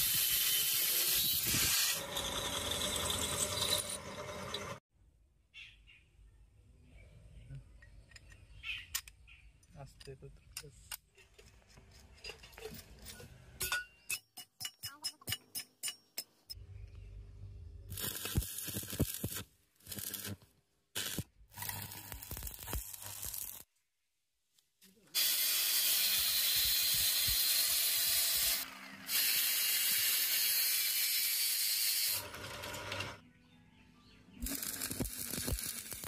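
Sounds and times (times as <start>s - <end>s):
grinding and crackling: 1.1s - 4.8s
steady hiss and crackle: 21.0s - 23.7s.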